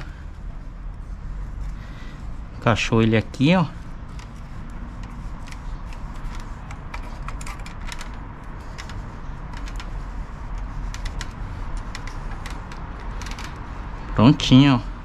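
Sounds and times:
metal clicks and scrapes: 3.8s - 14.1s.

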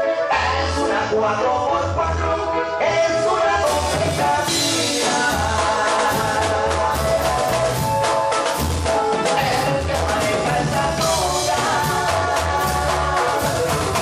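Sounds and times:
live band playing dance tune: 0.0s - 14.0s.

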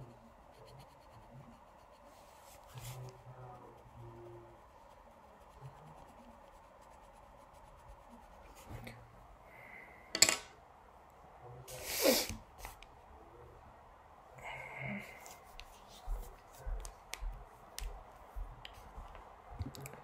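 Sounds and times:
pen scratching on paper: 0.0s - 8.9s.

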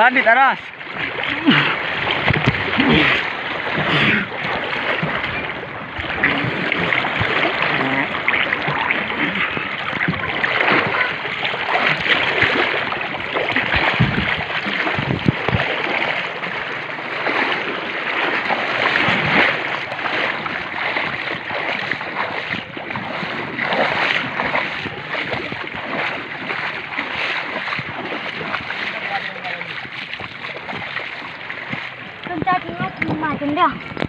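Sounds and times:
river water rushing and splashing: 0.0s - 34.0s
low thumps: 2.0s - 3.9s, 5.0s - 15.7s.

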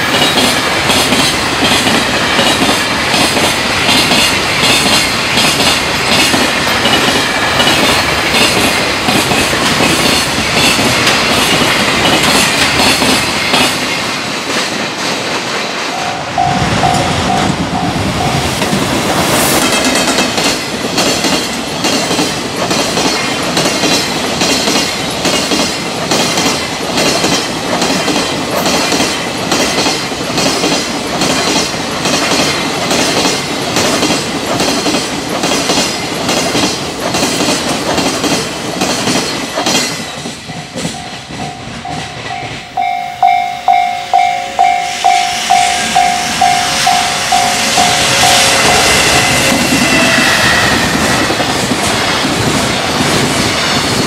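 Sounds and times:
freight train wheels clacking: 0.0s - 54.0s
level crossing warning bell: 15.9s - 18.9s, 40.0s - 50.8s.

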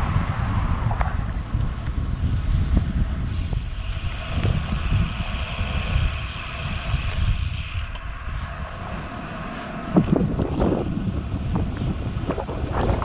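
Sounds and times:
wind buffeting microphone: 0.0s - 13.0s
tyres hissing on wet pavement: 3.1s - 10.1s.

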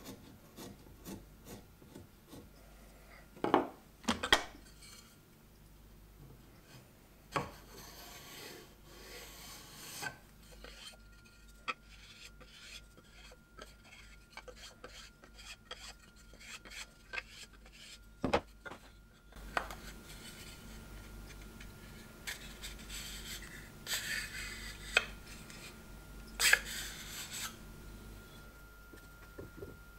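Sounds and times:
scraping and rasping on wood: 0.0s - 2.5s, 7.4s - 18.0s.

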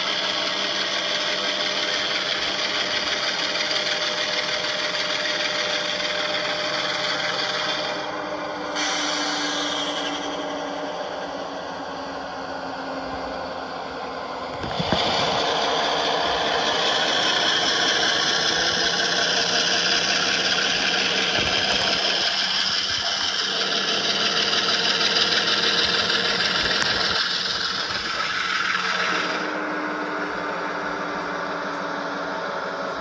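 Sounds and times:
model locomotive diesel engine sound: 0.0s - 33.0s.

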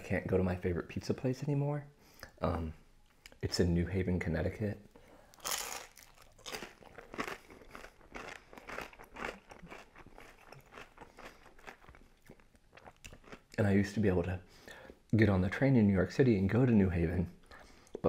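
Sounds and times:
crunchy pizza crust chewing: 5.4s - 13.5s.

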